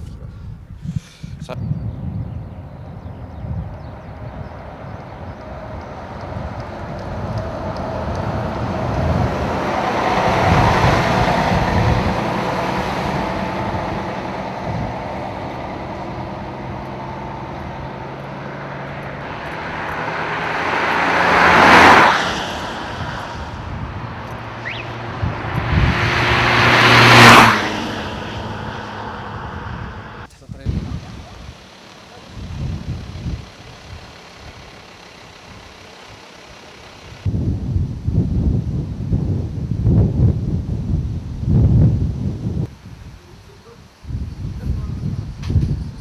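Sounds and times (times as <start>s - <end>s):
vehicles passing with whoosh: 1.7s - 46.0s
coach diesel engine passing: 2.6s - 37.3s.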